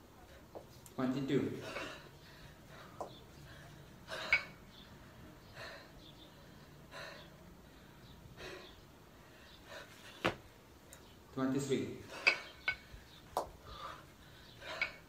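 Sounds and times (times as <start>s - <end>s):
person breathing hard: 1.6s - 10.2s, 12.0s - 15.0s.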